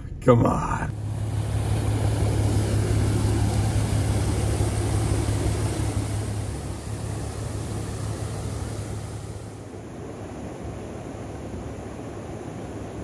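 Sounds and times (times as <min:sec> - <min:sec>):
truck engine idling: 0:00.0 - 0:09.8
water rushing over rocks: 0:00.9 - 0:13.0.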